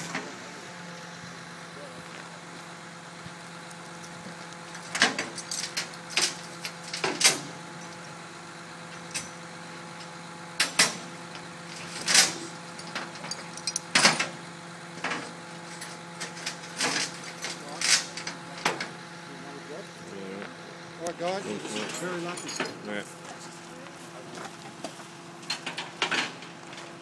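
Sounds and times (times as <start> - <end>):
engine idling hum: 0.0 - 27.0
metal gear clanking: 4.8 - 7.5, 11.8 - 14.3, 15.7 - 18.8, 21.2 - 23.0.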